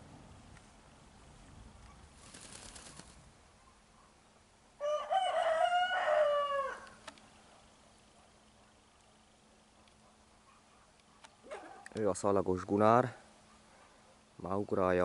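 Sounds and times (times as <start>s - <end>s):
rooster crowing: 4.8s - 7.0s.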